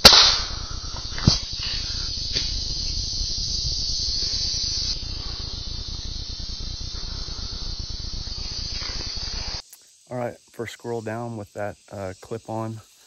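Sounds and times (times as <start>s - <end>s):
insect chorus buzzing: 0.0s - 13.0s.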